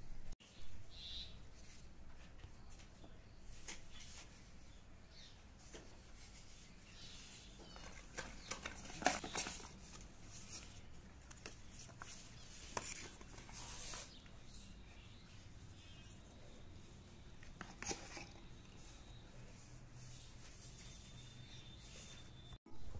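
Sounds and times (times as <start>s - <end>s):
cardboard and plastic rubbing: 5.6s - 14.7s, 17.1s - 22.5s.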